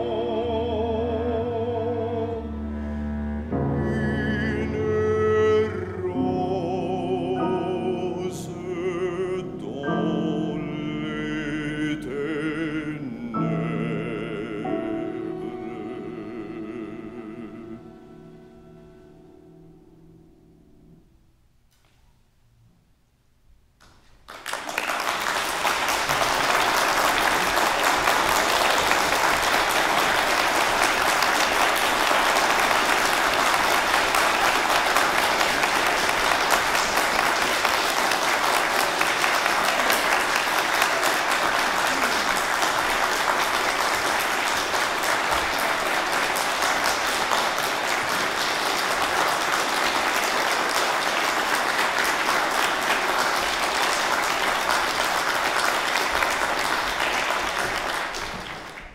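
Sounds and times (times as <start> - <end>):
audience applauding: 24.2 - 58.9.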